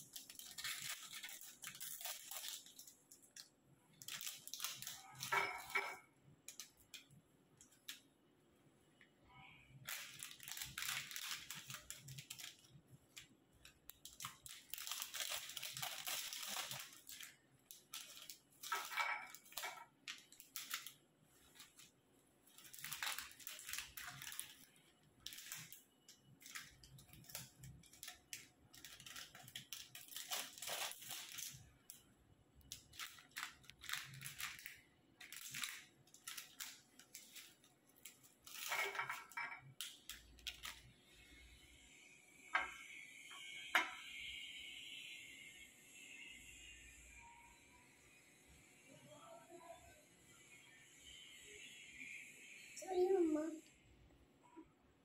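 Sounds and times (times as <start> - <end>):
plastic packets crinkling and tearing: 0.0 - 8.1, 9.7 - 32.0, 32.6 - 41.0.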